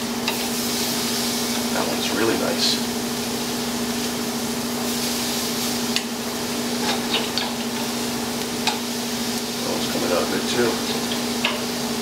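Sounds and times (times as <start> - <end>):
chicken sizzling on a grill: 0.0 - 12.0
tongs clicking on grill grate: 6.8 - 8.9.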